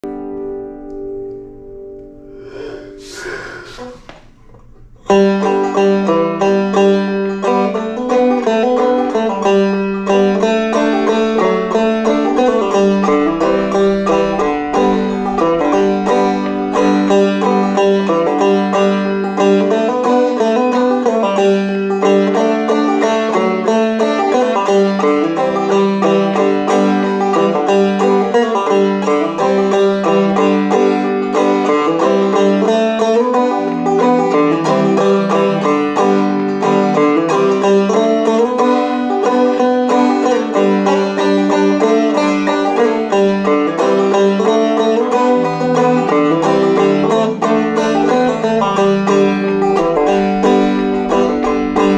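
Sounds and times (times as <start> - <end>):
banjo playing: 0.0 - 3.1, 3.7 - 51.9.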